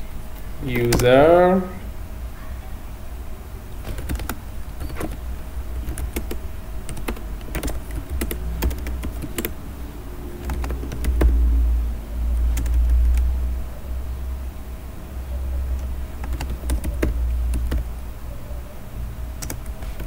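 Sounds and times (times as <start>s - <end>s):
computer keyboard typing: 0.7s - 1.2s, 3.9s - 9.6s, 10.4s - 11.5s, 12.4s - 13.4s, 15.7s - 17.9s, 19.4s - 20.0s.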